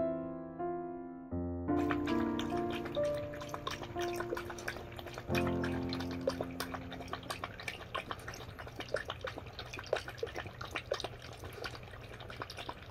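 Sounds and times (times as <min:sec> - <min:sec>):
dog lapping wet food: 0:01.8 - 0:12.9.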